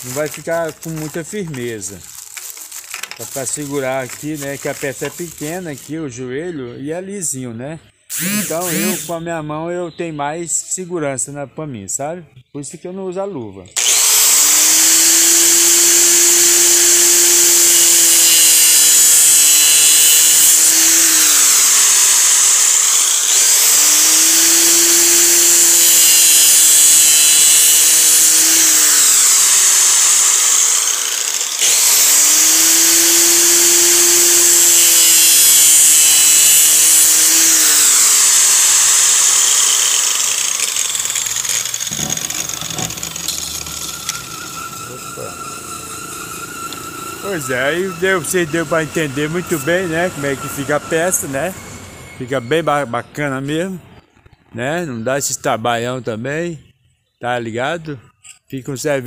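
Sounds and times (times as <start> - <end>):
angle grinder sanding plastic pipe: 0.0 - 6.0, 8.1 - 9.2, 13.8 - 51.6.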